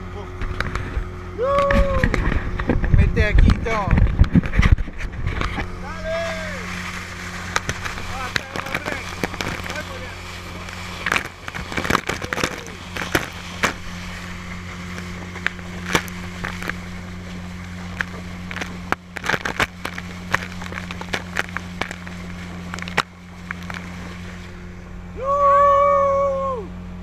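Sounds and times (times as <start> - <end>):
outboard motor running: 0.0 - 27.0
water slapping against hull: 0.3 - 24.7
man shouting: 1.4 - 2.0, 5.9 - 6.6, 25.2 - 26.7.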